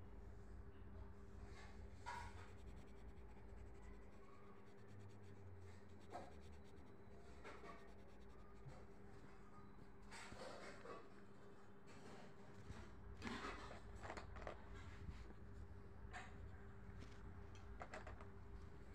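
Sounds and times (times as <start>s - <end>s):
low steady hum: 0.0s - 18.9s
pencil scratching on paper: 1.9s - 9.0s.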